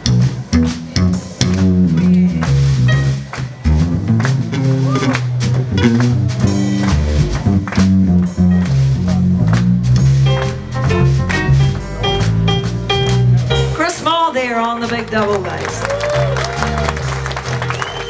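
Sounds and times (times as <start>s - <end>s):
double bass plucking: 0.0s - 18.0s
drums keeping time: 0.0s - 18.0s
digital piano: 1.9s - 7.6s, 8.4s - 15.5s.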